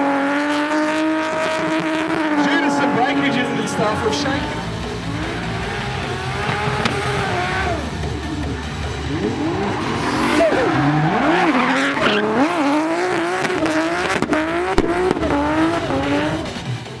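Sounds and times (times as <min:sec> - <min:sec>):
car engine revving: 0:00.0 - 0:17.0
tyre squeal: 0:09.7 - 0:12.9.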